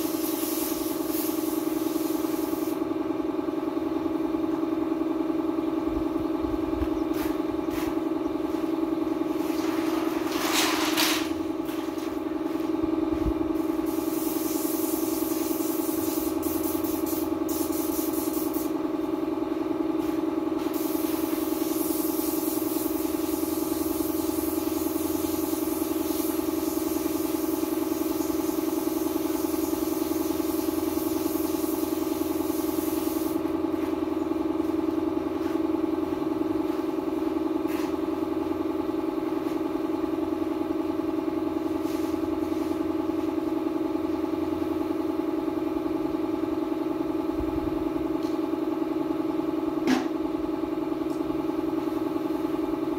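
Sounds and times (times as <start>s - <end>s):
paint spray gun hissing: 0.0s - 2.9s, 13.6s - 18.8s, 20.0s - 33.5s
air compressor humming: 0.0s - 52.9s.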